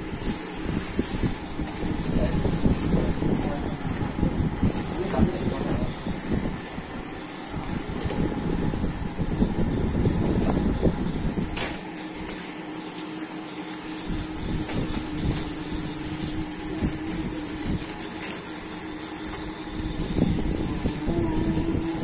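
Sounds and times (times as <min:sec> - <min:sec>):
steady hum: 0:00.0 - 0:22.0
packets and boxes being handled: 0:11.4 - 0:20.2.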